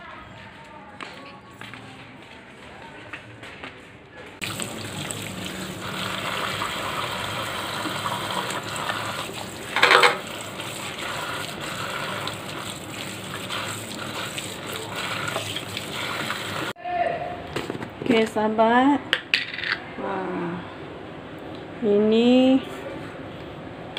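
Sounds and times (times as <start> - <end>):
tap running into steel sink: 7.7 - 10.4.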